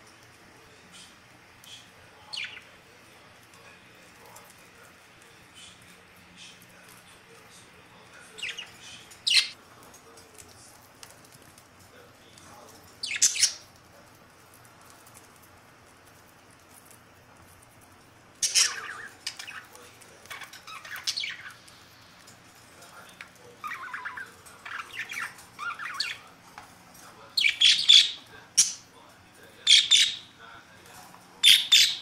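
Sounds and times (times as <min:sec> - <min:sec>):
budgerigars chirping and squawking: 0:01.8 - 0:02.7, 0:08.4 - 0:09.6, 0:13.0 - 0:13.6, 0:18.4 - 0:21.6, 0:23.6 - 0:26.2, 0:27.4 - 0:28.8, 0:29.7 - 0:30.3, 0:31.4 - 0:32.0.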